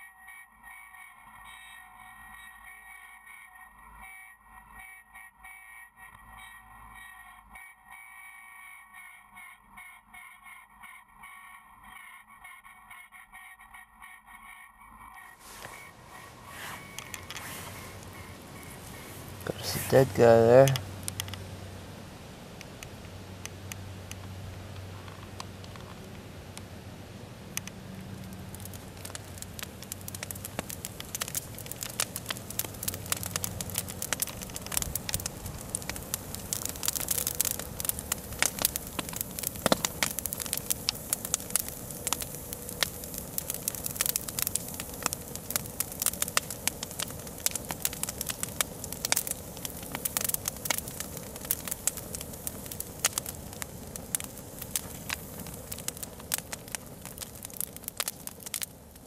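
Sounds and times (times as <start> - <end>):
fire crackling and popping: 15.2 - 59.0.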